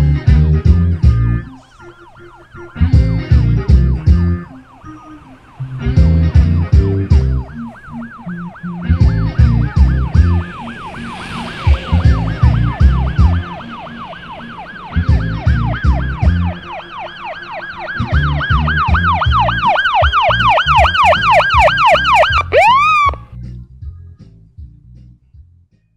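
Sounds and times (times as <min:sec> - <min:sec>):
music with thumping bass beat: 0:00.0 - 0:01.5, 0:02.8 - 0:04.5, 0:05.8 - 0:10.4, 0:12.0 - 0:13.5, 0:15.0 - 0:16.5, 0:18.0 - 0:25.9
siren yelping: 0:01.2 - 0:23.3.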